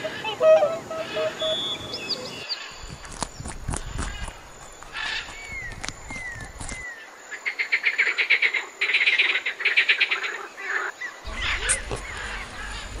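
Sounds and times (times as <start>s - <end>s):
rapid trilling animal call: 0.0s - 2.8s, 11.2s - 13.0s
scattered animal calls: 0.0s - 13.0s.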